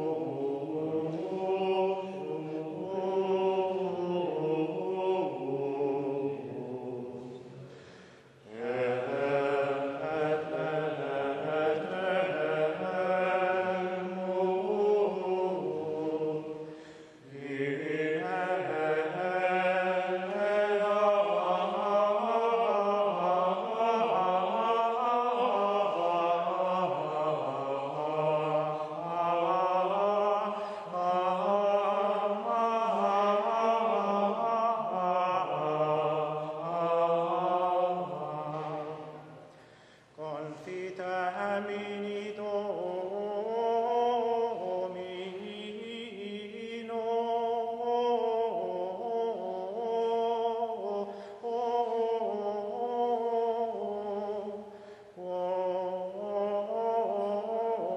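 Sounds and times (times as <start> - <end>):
voices chanting in unison: 0.0 - 57.9.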